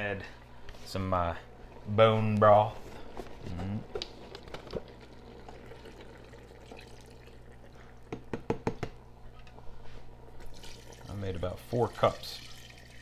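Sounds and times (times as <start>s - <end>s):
broth glugging and splashing into pot: 4.7s - 8.4s, 10.4s - 11.2s, 11.8s - 13.0s.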